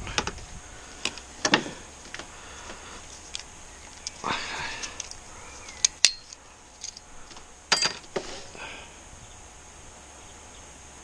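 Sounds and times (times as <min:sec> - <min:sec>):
metallic clinks of brake parts: 0:05.0 - 0:07.0, 0:07.7 - 0:08.1.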